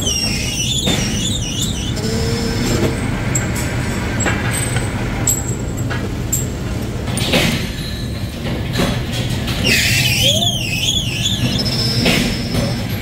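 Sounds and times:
wavering high squeal: 0:09.6 - 0:12.6.

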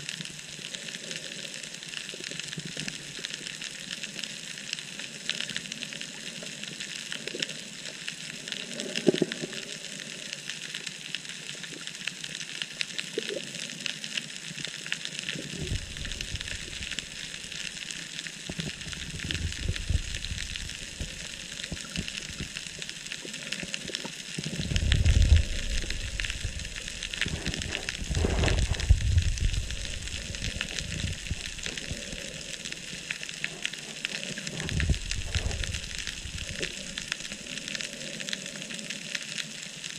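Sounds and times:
underwater crackling: 0:00.0 - 0:39.9
low rumbles: 0:15.6 - 0:17.9, 0:18.5 - 0:22.9, 0:24.4 - 0:37.4.

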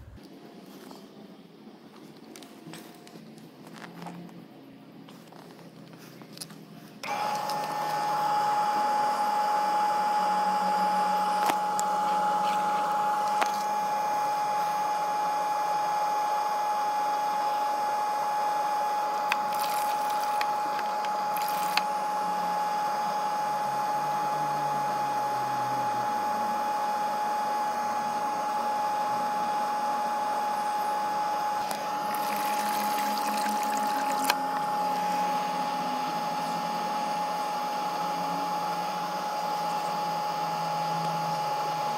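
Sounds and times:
electric pump motor whine: 0:00.0 - 0:41.9
water rushing through hoses: 0:32.0 - 0:34.4.

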